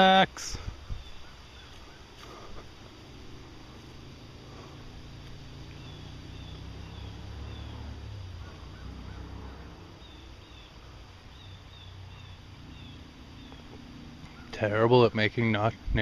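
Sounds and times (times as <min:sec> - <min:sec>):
ducks calling: 0:00.8 - 0:14.9.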